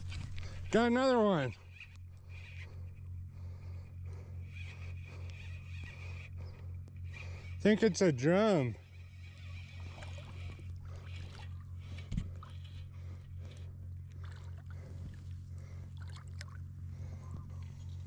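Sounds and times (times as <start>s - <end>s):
fishing reel cranking: 0.0s - 13.8s
steady low hum: 0.0s - 18.0s
faint irregular clicking: 4.5s - 7.2s
light water splashing: 9.7s - 12.7s, 14.1s - 16.7s.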